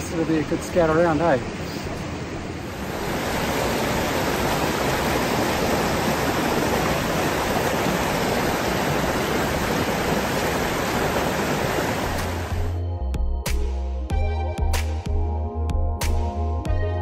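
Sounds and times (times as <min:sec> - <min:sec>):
mountain stream rushing over boulders: 0:00.0 - 0:12.7.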